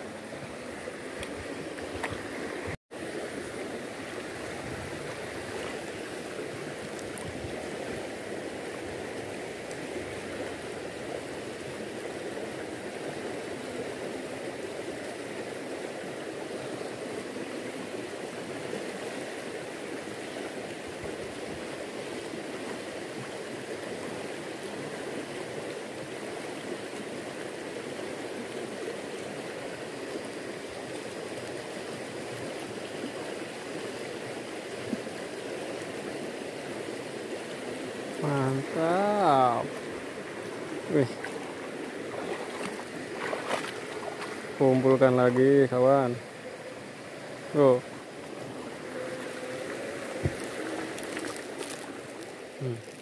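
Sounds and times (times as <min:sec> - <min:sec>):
river current rushing: 0:00.0 - 0:53.0.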